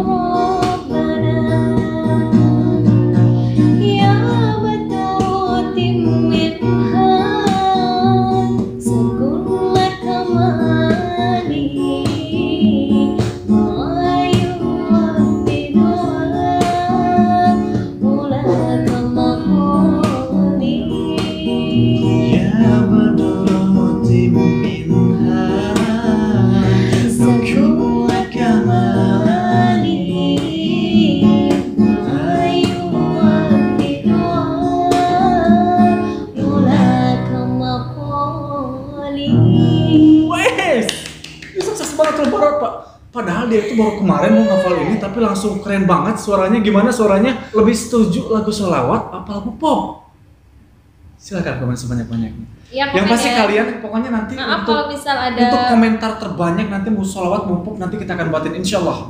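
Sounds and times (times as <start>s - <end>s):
woman singing devotional song: 0.0s - 40.3s, 52.9s - 53.7s, 54.4s - 56.0s
strummed acoustic guitar: 0.0s - 42.6s, 43.3s - 48.9s.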